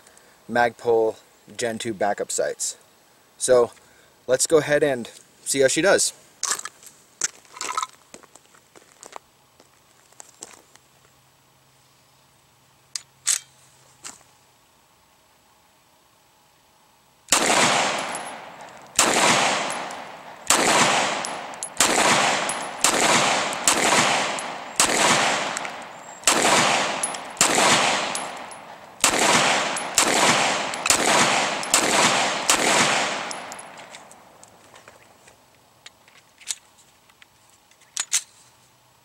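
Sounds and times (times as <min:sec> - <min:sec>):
pistol shots with echo: 0:17.3 - 0:33.9.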